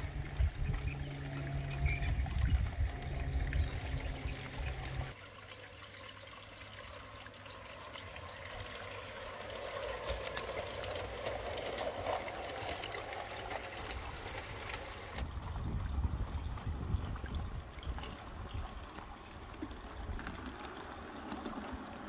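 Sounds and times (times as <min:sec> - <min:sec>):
model train rolling on track: 0:00.0 - 0:05.2, 0:07.8 - 0:15.2.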